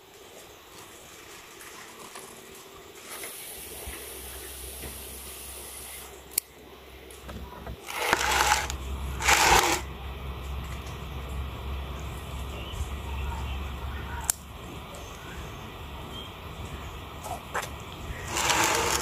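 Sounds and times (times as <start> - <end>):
rustling bursts: 7.8 - 9.8, 18.2 - 19.0.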